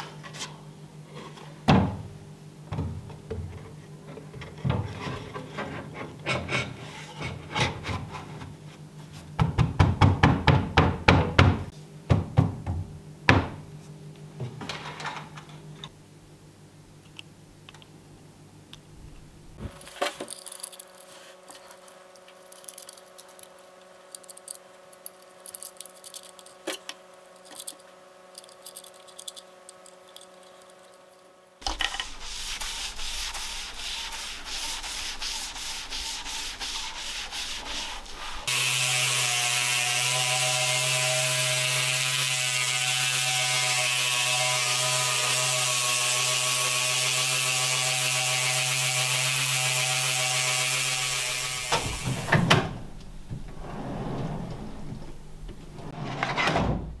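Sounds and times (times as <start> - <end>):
scratchy rubbing: 31.7 - 38.5
orbital polisher running: 38.5 - 41.0.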